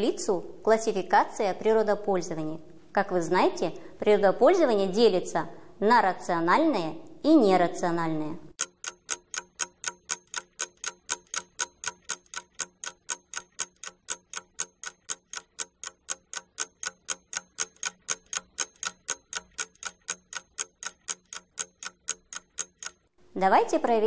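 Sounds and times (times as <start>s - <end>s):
clock ticking: 8.5s - 23.2s.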